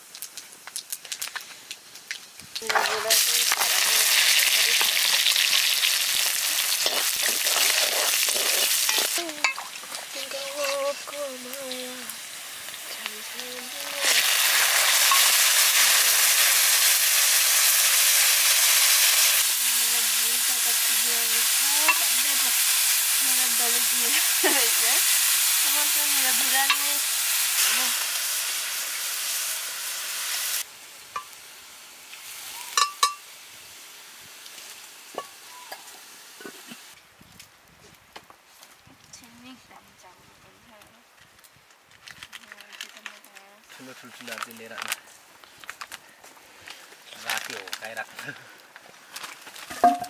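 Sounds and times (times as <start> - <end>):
food sizzling in hot oil: 0.0 - 37.0, 49.6 - 50.0.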